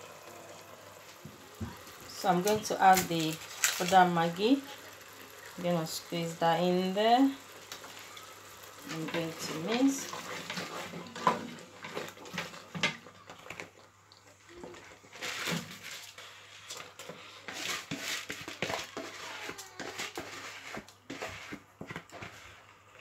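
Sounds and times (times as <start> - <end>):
wooden spoon scraping a pot: 8.8 - 13.7, 14.6 - 23.0.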